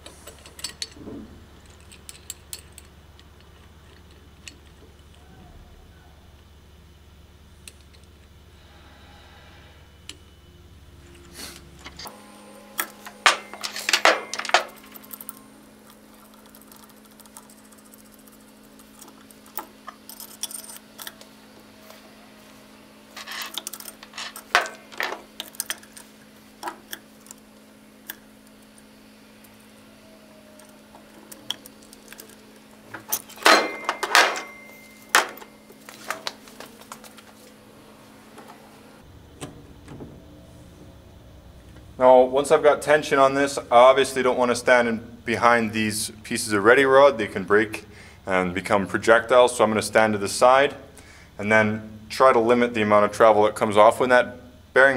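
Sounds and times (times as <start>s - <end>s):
steel parts clinking and clattering: 0.0s - 5.2s, 12.8s - 21.3s, 23.1s - 29.9s, 30.6s - 36.4s
faint steady hum: 0.0s - 54.9s.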